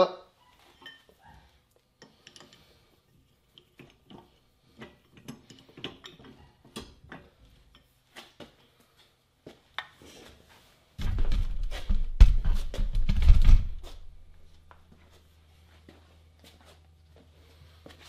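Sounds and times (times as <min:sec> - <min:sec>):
metallic clicks and clinks: 0:02.0 - 0:02.8.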